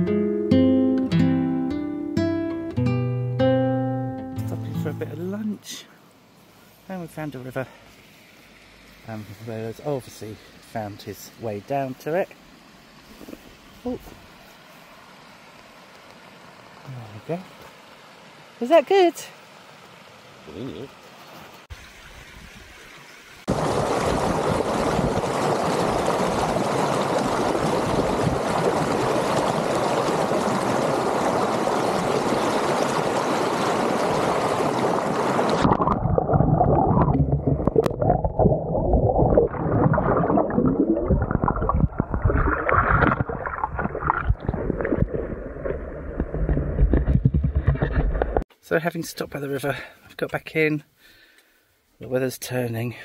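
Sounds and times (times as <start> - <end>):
stream rushing over rocks: 13.0 - 36.0.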